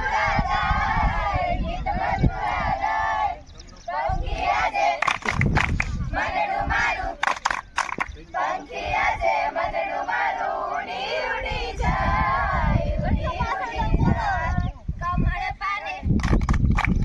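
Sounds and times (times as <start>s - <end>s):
women singing in unison: 0.0s - 5.2s, 6.1s - 7.4s, 8.4s - 16.1s
sharp claps: 4.4s - 6.0s, 7.2s - 8.2s, 16.2s - 17.0s.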